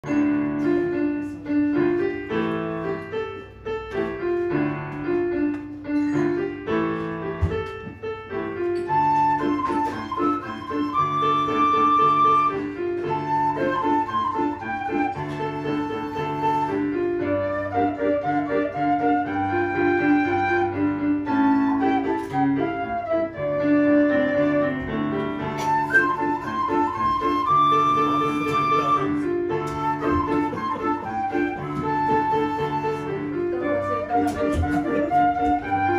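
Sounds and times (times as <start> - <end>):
digital piano playing chords: 0.0 - 35.9
end-blown flute melody: 8.9 - 35.9.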